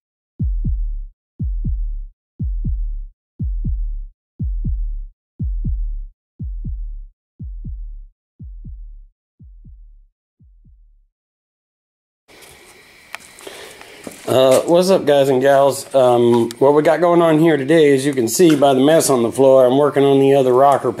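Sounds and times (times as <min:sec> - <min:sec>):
electronic heartbeat thumps: 0:00.4 - 0:11.1.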